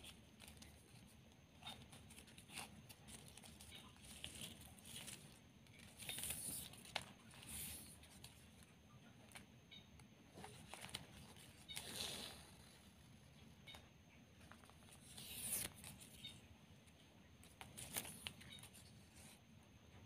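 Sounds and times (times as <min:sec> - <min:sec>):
ribbon rustling and crinkling: 0:00.0 - 0:08.7, 0:10.3 - 0:13.0, 0:17.4 - 0:19.4.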